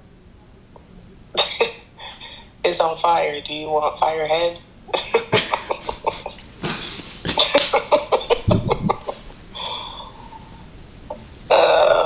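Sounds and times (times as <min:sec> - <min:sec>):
person laughing hard: 0:05.2 - 0:09.9.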